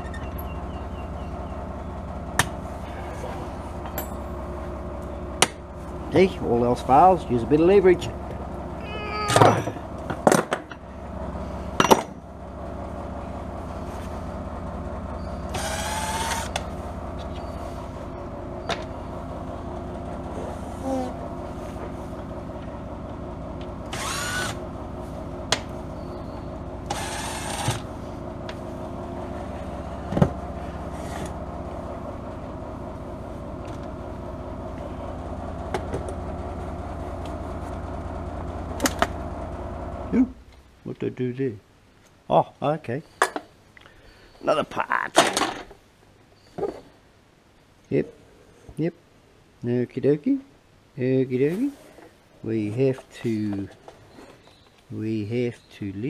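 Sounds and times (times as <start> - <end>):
cordless drill whirring: 15.5 - 16.6, 23.9 - 24.6, 26.9 - 27.8.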